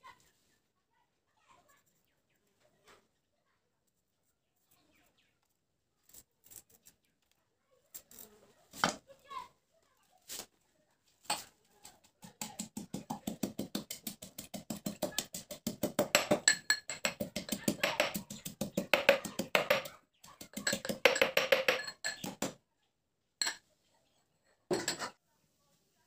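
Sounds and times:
metal pestle pounding in mortar: 0:12.5 - 0:22.6.

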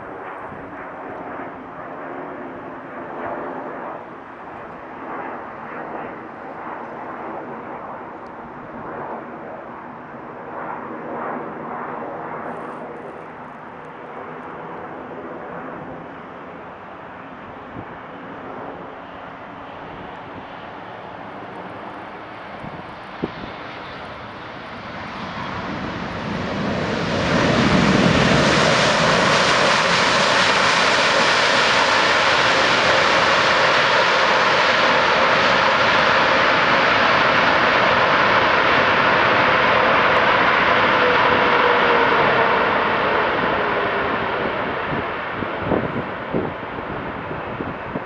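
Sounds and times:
jet airliner engines roaring: 0:00.0 - 0:48.0.

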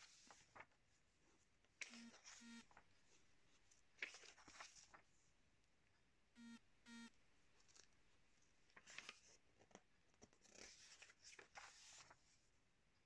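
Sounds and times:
magazine pages rustling: 0:03.6 - 0:05.2, 0:08.7 - 0:12.4.

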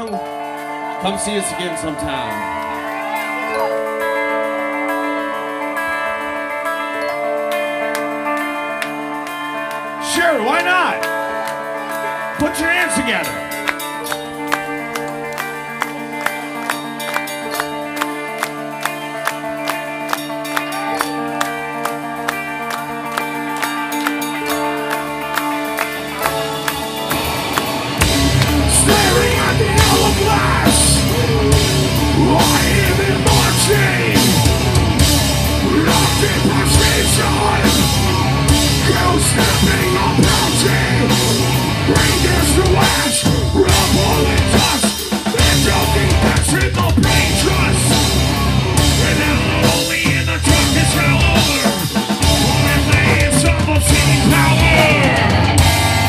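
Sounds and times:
electric guitar: 0:00.0 - 0:56.0
bass guitar: 0:11.0 - 0:56.0
person singing: 0:20.3 - 0:56.0
drum kit: 0:23.1 - 0:56.0.

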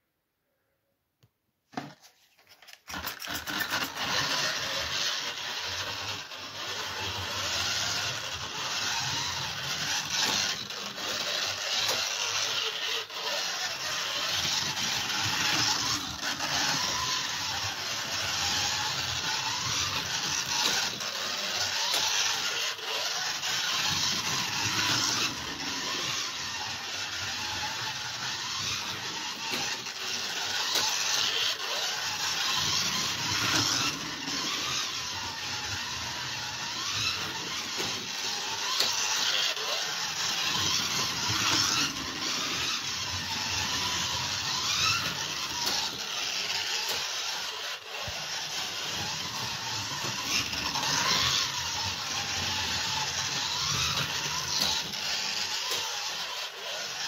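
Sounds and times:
toy cars rattling along track: 0:01.8 - 0:57.0
small electric motors whining: 0:02.7 - 0:57.0.

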